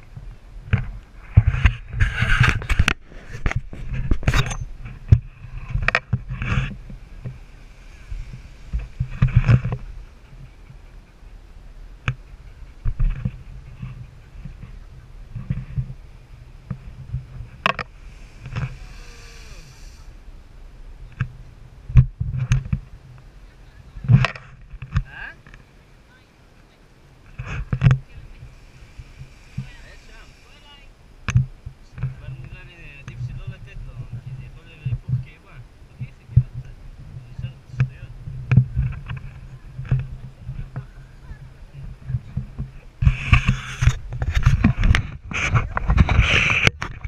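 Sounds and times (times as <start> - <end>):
wind rumble on microphone: 0.0 - 47.0
knocks and scrapes on camera housing: 0.7 - 7.4, 42.4 - 47.0.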